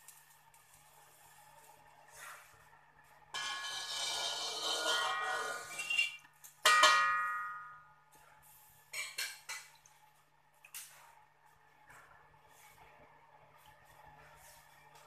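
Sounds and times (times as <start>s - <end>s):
metal spatula scraping wok: 3.4s - 6.3s
metal clang on wok: 3.4s - 7.8s.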